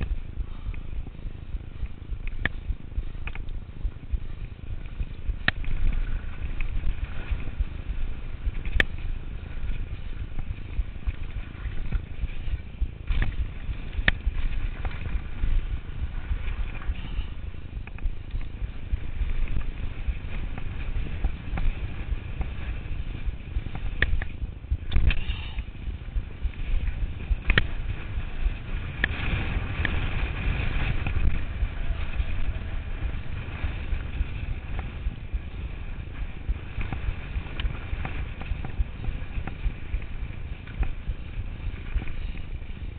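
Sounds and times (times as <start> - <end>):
wind buffeting: 0.0 - 42.9
bike clicks and knocks: 1.8 - 3.6, 5.0 - 7.5, 8.4 - 9.0, 9.7 - 15.6, 26.5 - 27.8.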